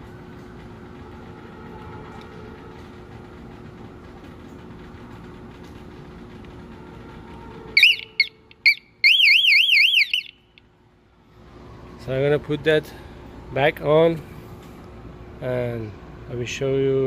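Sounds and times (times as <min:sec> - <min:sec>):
warbling high-pitched alarm tone: 0:07.8 - 0:10.4
alarm chirps: 0:07.8 - 0:10.6.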